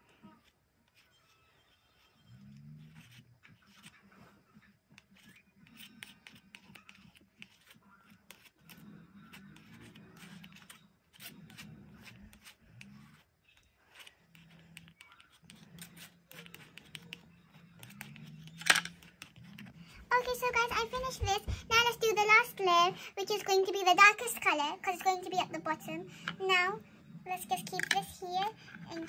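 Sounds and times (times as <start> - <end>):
palette knife scraping paint: 0.4 - 21.2.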